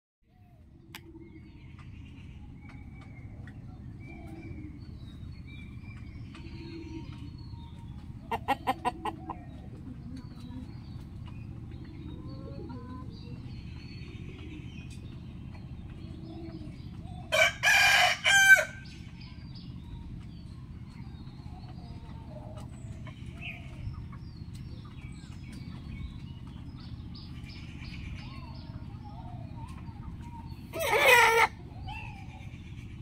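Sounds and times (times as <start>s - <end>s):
low background rumble: 0.3s - 33.0s
rooster crowing: 17.3s - 18.8s.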